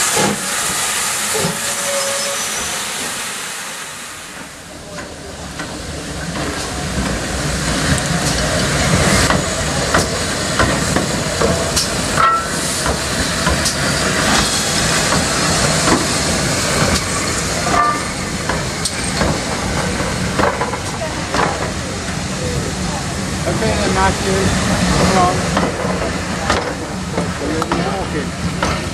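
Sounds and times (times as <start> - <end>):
steam hissing: 0.0 - 28.9
short squeals: 1.6 - 3.0.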